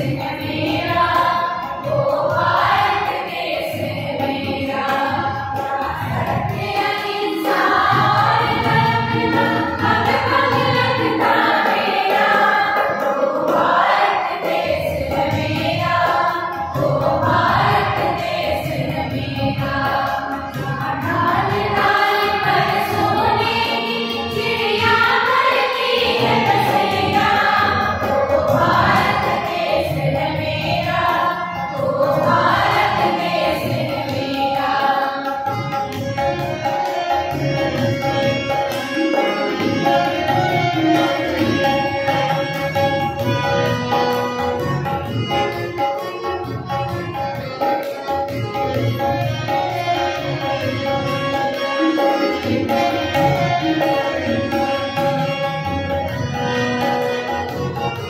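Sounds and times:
group of women singing: 0:00.0 - 0:37.4, 0:47.4 - 0:55.5
harmonium: 0:00.0 - 0:58.0
tabla: 0:00.0 - 0:58.0.

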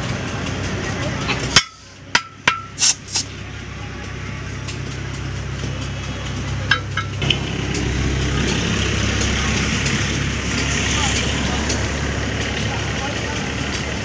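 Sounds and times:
compressed air rushing: 0:00.0 - 0:12.5
low mechanical hum: 0:00.0 - 0:14.0
tyre bar clinking on wheel rim: 0:01.3 - 0:03.3, 0:06.3 - 0:07.2.

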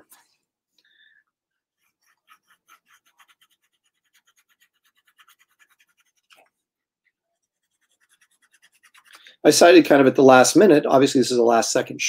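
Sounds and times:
pen scratching on paper: 0:01.8 - 0:06.4, 0:07.4 - 0:09.2.

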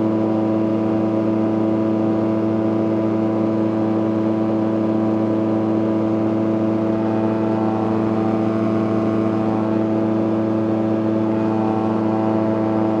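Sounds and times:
aircraft engine and propeller: 0:00.0 - 0:13.0.

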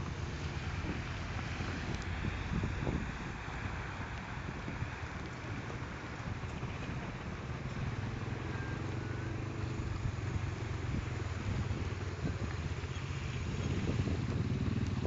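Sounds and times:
wind on the microphone: 0:00.6 - 0:07.9, 0:10.9 - 0:15.0.

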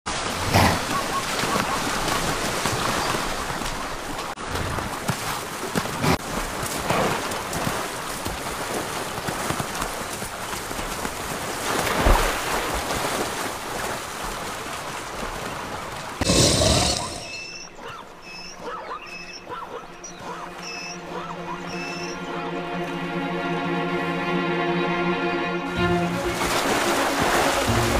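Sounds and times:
animals splashing through river: 0:00.1 - 0:24.1, 0:25.7 - 0:27.9.

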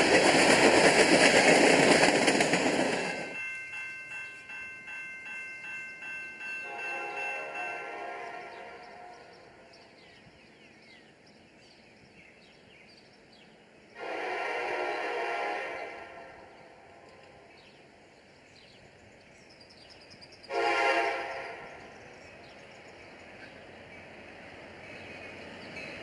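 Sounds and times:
distant train air horn: 0:06.6 - 0:09.7, 0:14.0 - 0:17.2, 0:20.5 - 0:22.0.

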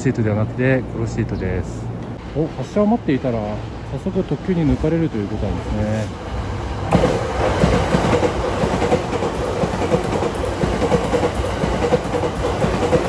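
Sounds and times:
steady train hum: 0:00.0 - 0:13.0
train wheels clattering over rail joints: 0:06.9 - 0:13.0.

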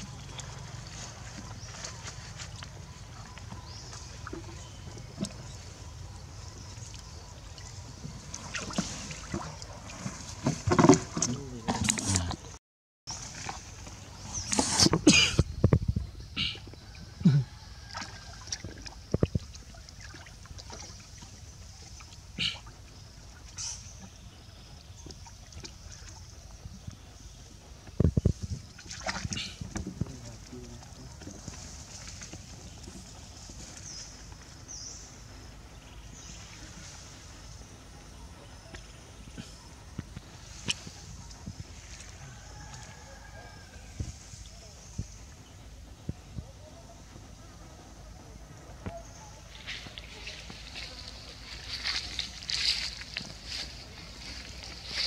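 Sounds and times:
water splashing in plastic tub: 0:06.9 - 0:12.5, 0:28.6 - 0:32.9.

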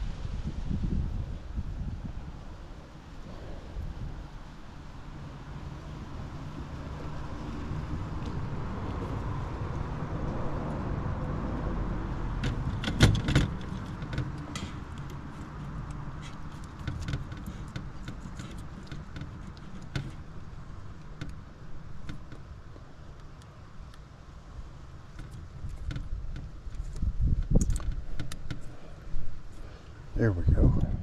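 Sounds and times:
wires rattling: 0:12.1 - 0:22.5.

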